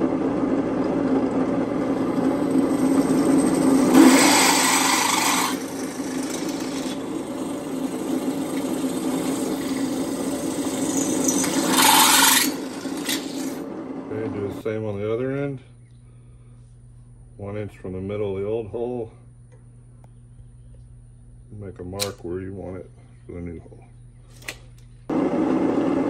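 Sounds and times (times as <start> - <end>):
drill press motor hum: 0.0 - 14.6
drill cutting through metal tube: 2.2 - 13.7.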